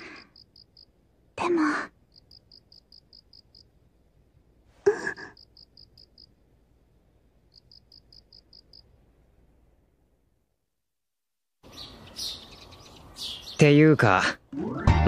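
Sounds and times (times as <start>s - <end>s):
crickets chirping: 0.0s - 1.1s, 1.8s - 3.8s, 5.1s - 6.4s, 7.4s - 9.0s.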